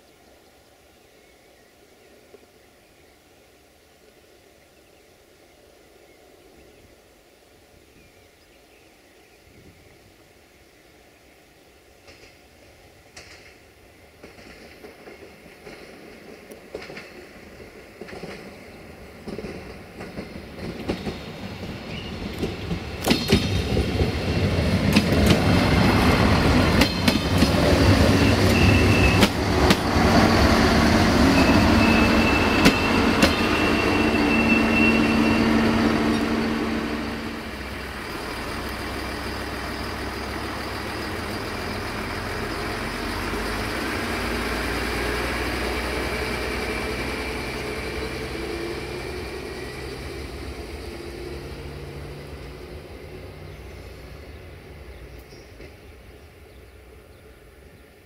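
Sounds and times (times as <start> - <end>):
wheels clicking over rail joints: 13.1 - 30.2
diesel engine drone: 23.8 - 55.3
high wheel squeal: 27.7 - 38.2.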